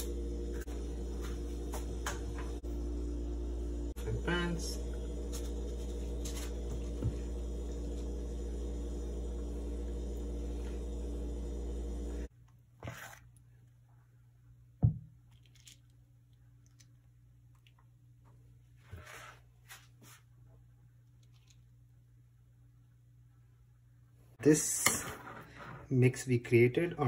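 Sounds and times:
low hum with pitched tones: 0.0s - 12.3s
batter squishing: 12.6s - 13.9s.

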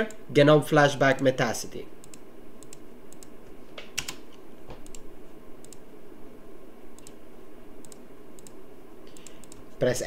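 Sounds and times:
keyboard and mouse clicks: 2.0s - 5.8s, 7.0s - 7.2s, 7.8s - 9.8s.

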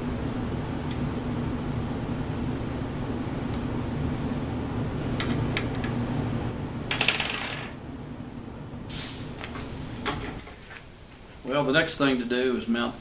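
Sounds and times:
steady low hum: 0.0s - 13.0s.

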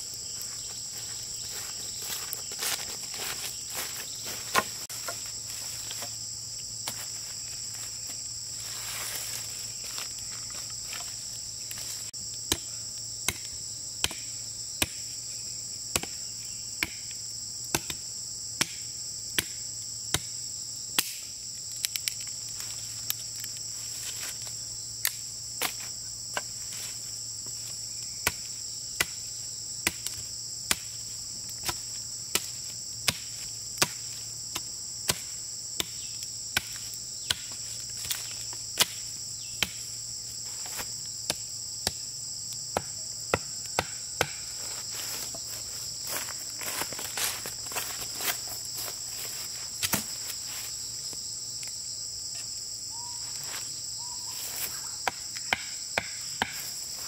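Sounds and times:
high-pitched insect buzz: 0.0s - 17.6s, 35.5s - 57.0s.

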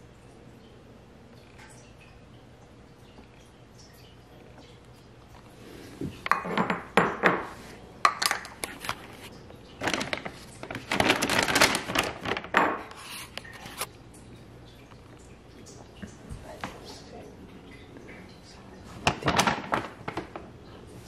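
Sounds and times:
cat food bag crinkling: 9.8s - 13.9s, 18.9s - 20.5s.

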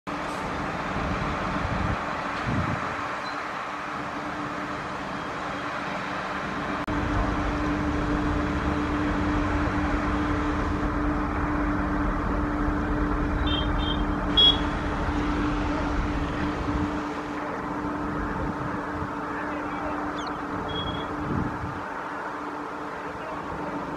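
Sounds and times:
electric locomotive humming: 0.1s - 23.9s
wind rumble on microphone: 0.7s - 3.1s, 17.8s - 19.3s, 20.5s - 22.0s
short high beeps: 20.2s - 21.1s.

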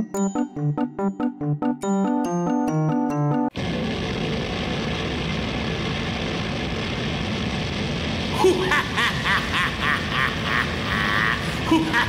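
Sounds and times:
steady rushing noise: 3.5s - 12.0s
high cackling laugh: 8.3s - 12.0s.

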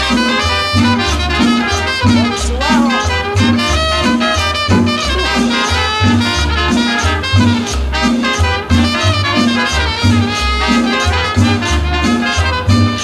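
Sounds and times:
brass horns playing: 0.0s - 13.0s
pulsing bass line: 0.0s - 13.0s.

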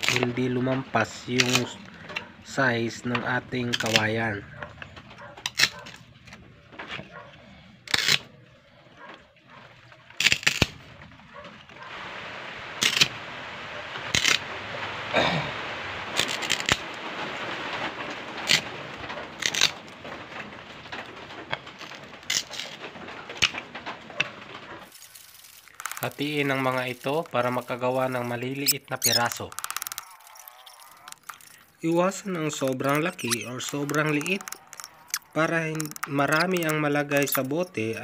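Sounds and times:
machete splitting bamboo: 7.9s - 8.3s, 10.2s - 10.8s, 12.8s - 13.1s, 14.1s - 14.4s, 16.2s - 16.8s.

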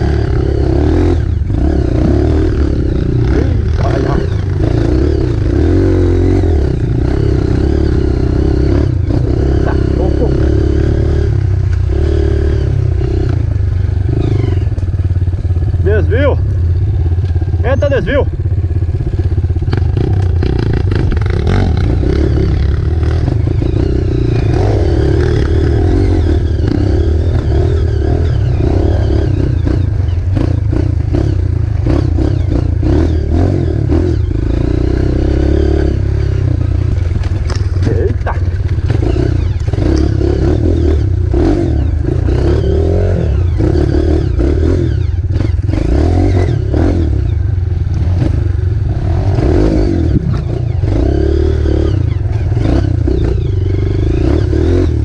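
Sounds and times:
motorcycle engine revving: 0.0s - 55.0s
rattling and knocks over rough ground: 36.6s - 39.0s.

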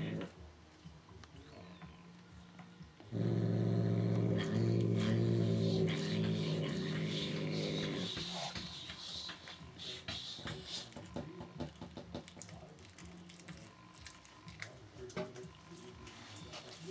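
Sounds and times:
cat growling low: 0.0s - 0.4s, 3.0s - 8.6s
wet chewing and crunching: 12.2s - 14.8s.

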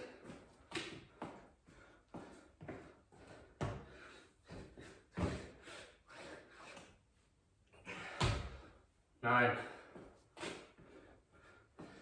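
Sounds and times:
heavy breathing: 1.1s - 7.1s, 9.5s - 12.0s.

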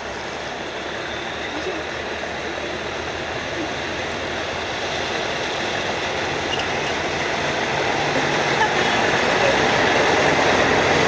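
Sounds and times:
diesel locomotive engine rumble: 0.0s - 11.0s
train wheels on rails: 0.0s - 11.0s.

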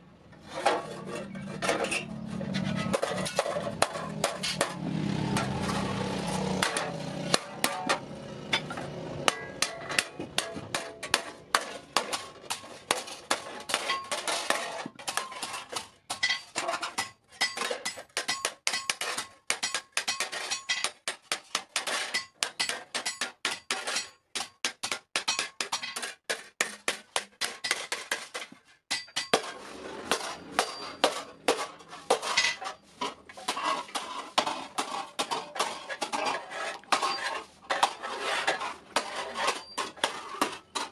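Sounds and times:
hammer striking metal on anvil: 28.9s - 29.4s, 30.1s - 31.3s.

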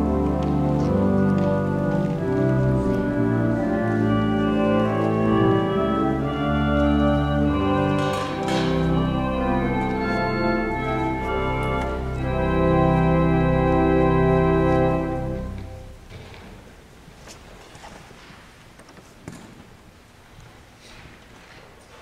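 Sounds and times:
church organ playing chords: 0.0s - 16.1s.

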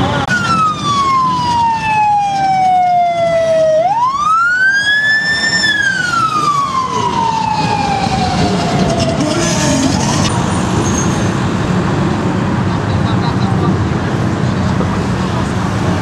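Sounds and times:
low traffic noise: 0.0s - 16.0s
siren wailing: 0.2s - 10.3s.

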